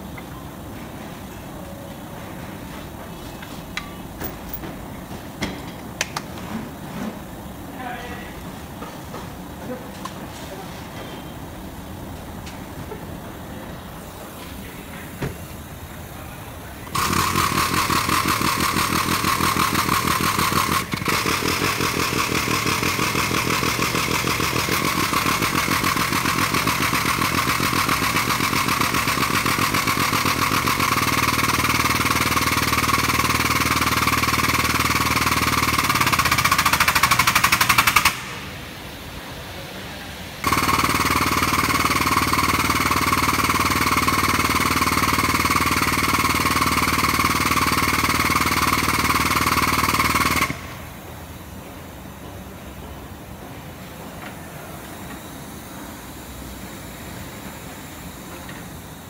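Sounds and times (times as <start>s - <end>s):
hydraulic pump chattering: 16.8s - 38.4s, 40.4s - 51.0s.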